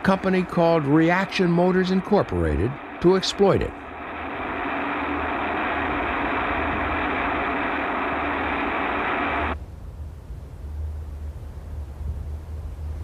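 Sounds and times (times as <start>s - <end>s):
low rumble: 0.0s - 11.1s
rocket motor firing: 0.6s - 9.6s.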